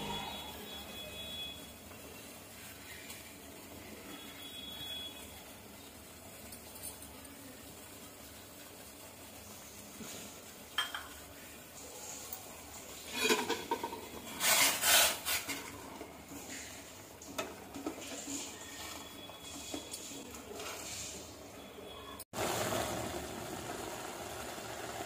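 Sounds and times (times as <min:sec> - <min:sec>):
water boiling: 0:00.0 - 0:25.0
spoon scraping metal pot: 0:13.0 - 0:16.8.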